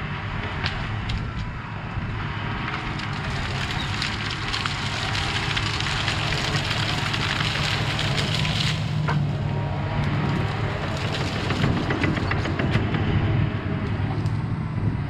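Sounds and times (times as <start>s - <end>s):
diesel engine under load: 0.0s - 15.0s
branches crackling and snapping: 2.6s - 12.6s.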